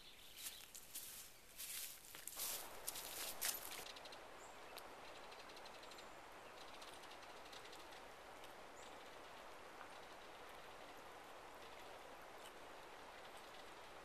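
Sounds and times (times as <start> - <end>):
footsteps crunching on dry grass: 0.3 - 3.8.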